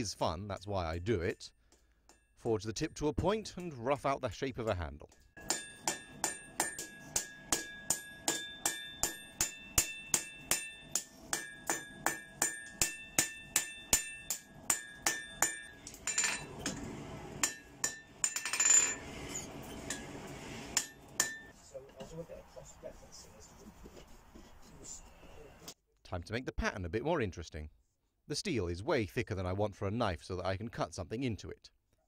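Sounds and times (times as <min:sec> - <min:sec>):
hammer striking metal on anvil: 0:05.1 - 0:21.6
anvil ringing: 0:05.4 - 0:20.1, 0:20.8 - 0:21.5.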